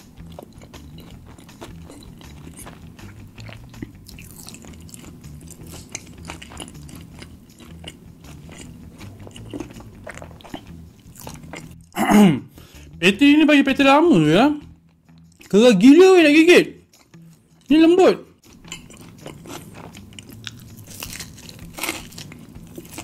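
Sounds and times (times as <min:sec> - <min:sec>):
crunchy chewing: 0:00.0 - 0:12.0, 0:18.5 - 0:23.0.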